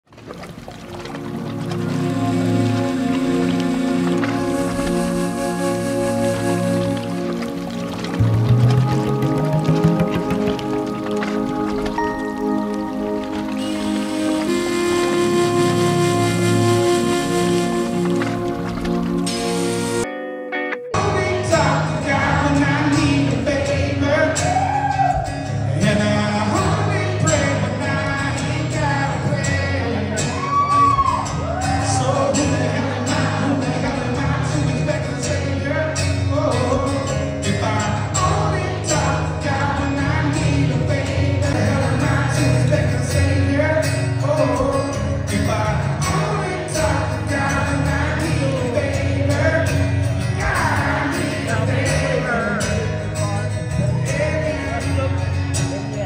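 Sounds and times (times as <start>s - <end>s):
strummed acoustic guitar: 0.1s - 56.0s
man singing into microphone: 20.9s - 31.0s, 31.7s - 56.0s.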